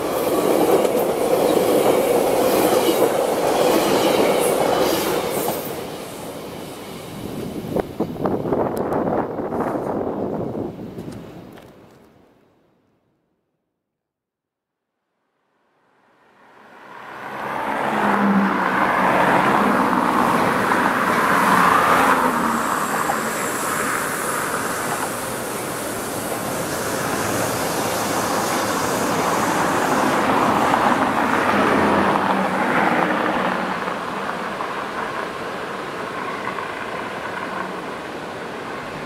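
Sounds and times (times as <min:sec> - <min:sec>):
cars passing: 0:16.1 - 0:39.0
road hiss: 0:16.6 - 0:39.0.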